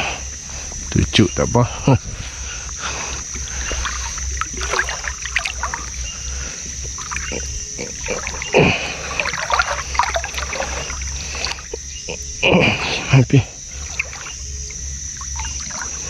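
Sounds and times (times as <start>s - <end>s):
high insect drone: 0.0s - 16.0s
water splashing and dripping: 3.0s - 11.8s, 13.7s - 16.0s.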